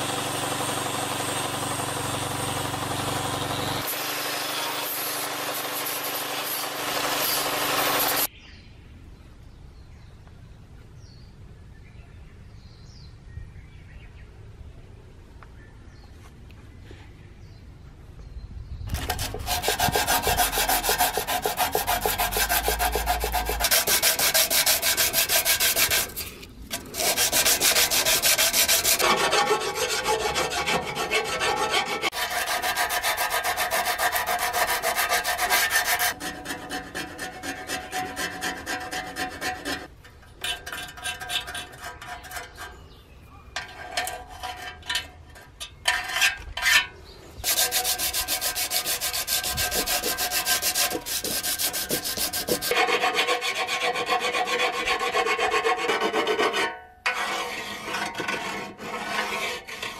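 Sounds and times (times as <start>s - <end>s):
sanding sheet metal by hand: 3.8s - 8.3s, 18.9s - 39.9s, 47.4s - 59.9s.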